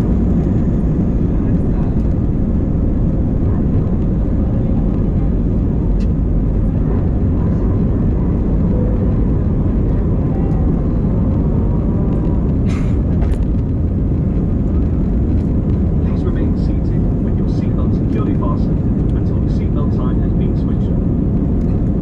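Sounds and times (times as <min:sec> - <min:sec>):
airplane cabin engine rumble: 0:00.0 - 0:22.0.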